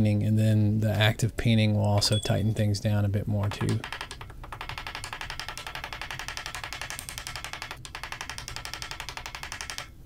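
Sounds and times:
rapid hammer tapping on metal: 3.4 - 10.0.

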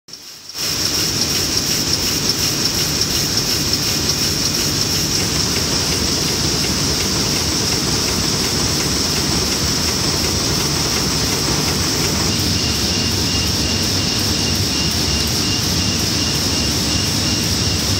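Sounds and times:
printing press clatter: 0.3 - 13.4.

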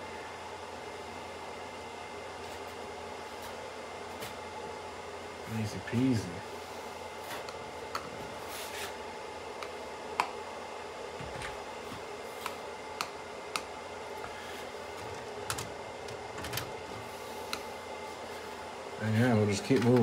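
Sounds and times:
background hum: 0.0 - 20.0.

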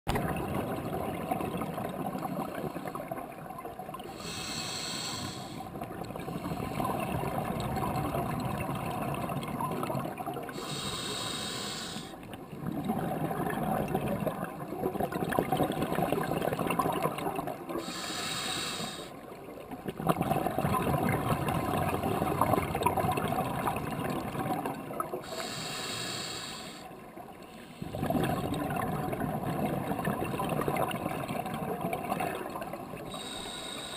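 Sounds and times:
exhaled bubbles rumbling: 0.1 - 4.2, 5.6 - 10.6, 12.3 - 17.8, 19.5 - 25.2, 27.8 - 33.2
regulator inhalation hiss: 4.1 - 5.6, 10.6 - 12.2, 17.8 - 19.2, 25.3 - 26.9, 33.1 - 33.9.

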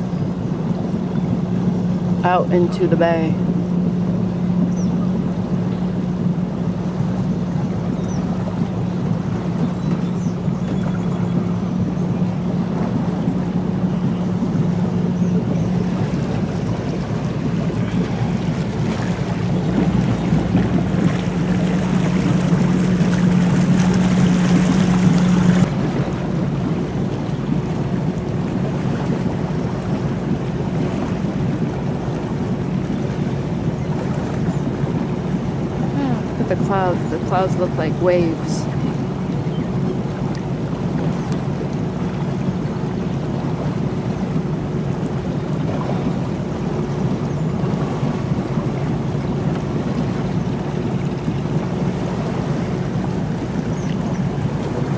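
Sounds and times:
boat engine droning: 0.0 - 54.9
water and wind hiss: 0.0 - 54.9.

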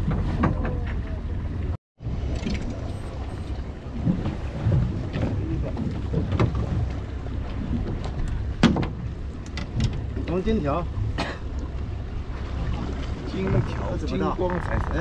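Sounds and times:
boat engine rumble: 0.0 - 15.0
wind on microphone: 12.2 - 15.0.

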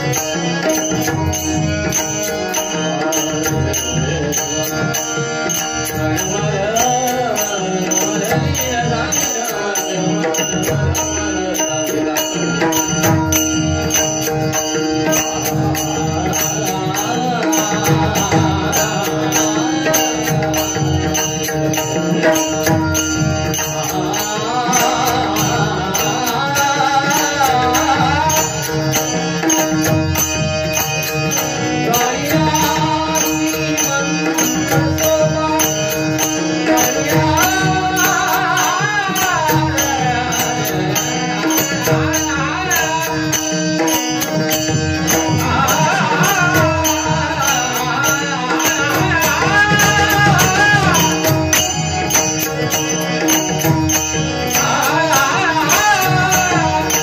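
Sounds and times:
man singing: 0.0 - 57.0.

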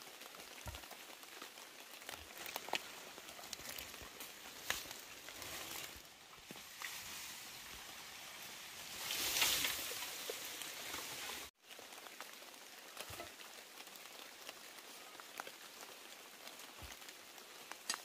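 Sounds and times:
light patter and rustling: 0.0 - 7.9, 8.8 - 18.0
soft hiss: 2.4 - 11.5.

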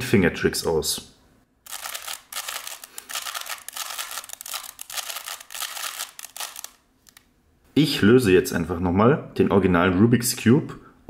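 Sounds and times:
puzzle cube plastic clicks: 1.6 - 7.3.

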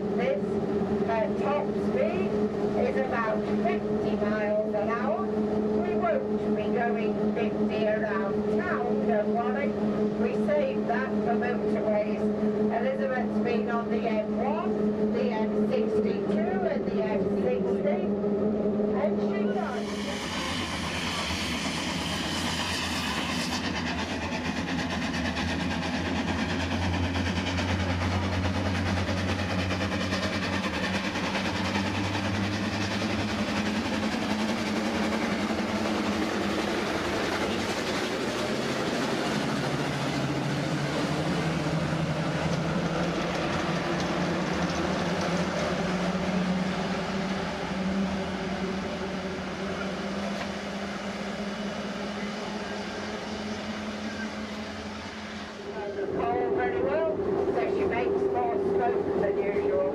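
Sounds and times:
traffic: 0.0 - 59.9
steam bus engine clattering: 19.8 - 55.8.

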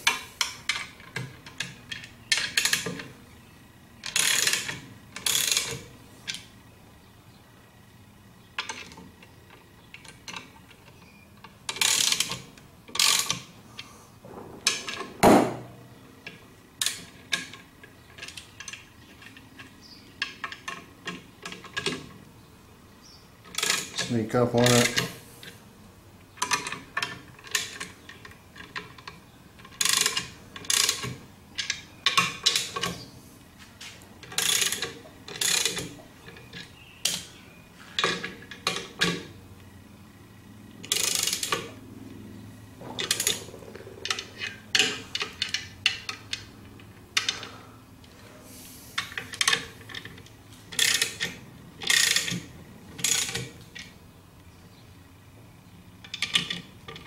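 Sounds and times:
ratchet wrench clicking: 0.0 - 3.1, 4.0 - 6.4, 11.7 - 13.5, 23.4 - 25.1, 28.6 - 33.0, 34.2 - 36.0, 40.8 - 41.7, 49.0 - 53.9.

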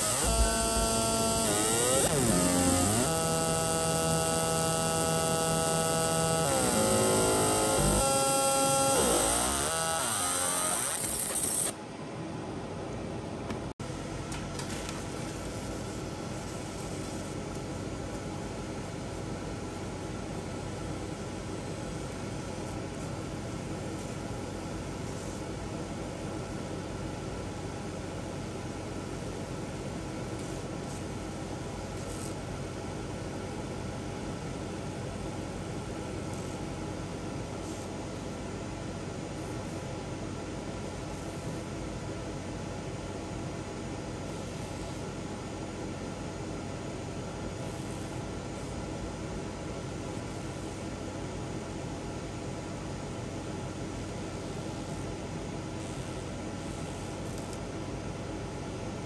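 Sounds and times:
laser engraver hiss and hum: 0.0 - 11.8, 15.0 - 58.6
fume extractor fan rushing: 0.0 - 12.1.

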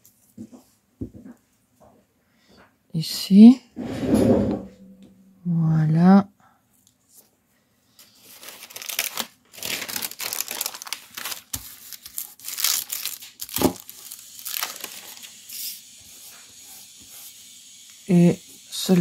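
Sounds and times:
paper rustling and crinkling: 8.0 - 15.6.

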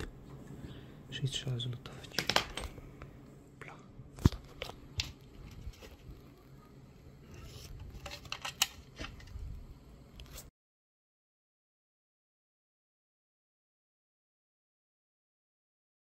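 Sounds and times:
plastic handling clicks and rustles: 2.1 - 2.8, 4.2 - 6.3, 7.3 - 9.4.

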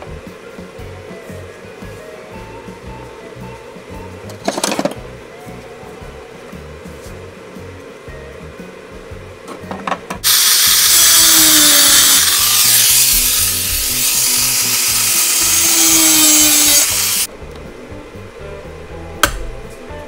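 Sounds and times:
angle grinder grinding steel: 10.2 - 17.3.

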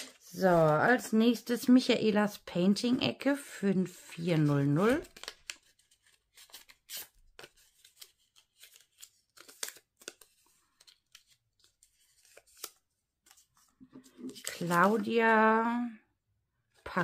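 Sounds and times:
paper being folded: 4.0 - 15.4.

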